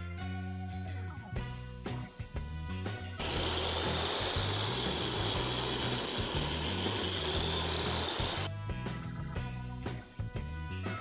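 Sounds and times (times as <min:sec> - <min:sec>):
miter saw cutting wood: 0:03.2 - 0:08.5.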